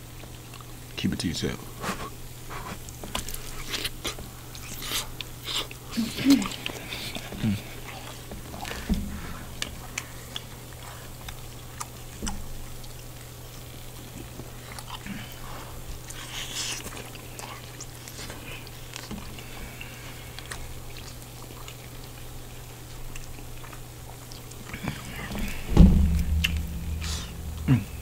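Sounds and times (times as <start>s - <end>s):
close chewing with lip smacks: 0.0s - 1.0s, 1.8s - 25.7s
steady low hum: 5.2s - 16.2s, 18.5s - 28.0s.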